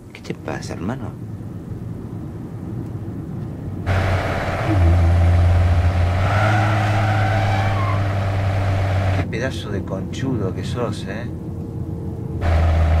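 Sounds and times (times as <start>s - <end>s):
tyre and road noise: 1.2s - 9.3s, 12.4s - 13.0s
car engine drone: 1.3s - 9.4s, 11.3s - 13.0s
muffled car cabin hum: 3.9s - 9.2s.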